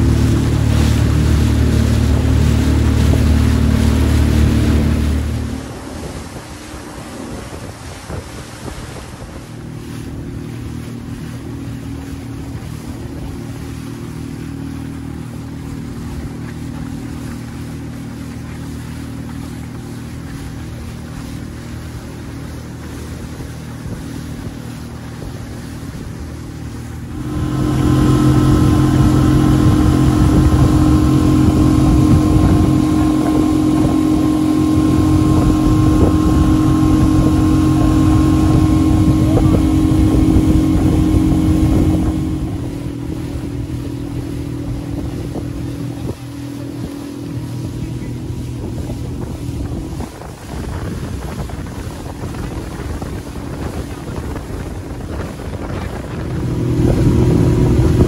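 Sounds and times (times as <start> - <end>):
outboard motor running: 0.0 - 58.0
water splashing against hull: 0.0 - 58.0.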